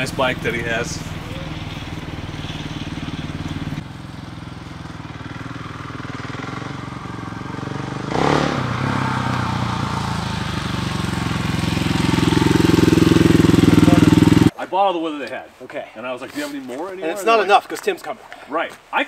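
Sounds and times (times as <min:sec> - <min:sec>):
motorcycle engine running: 0:00.0 - 0:14.5.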